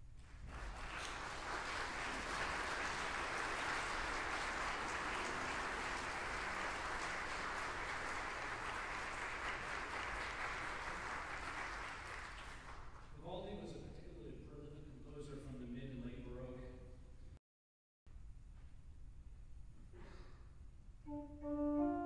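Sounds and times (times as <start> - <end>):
audience applauding: 0.3 - 13.1.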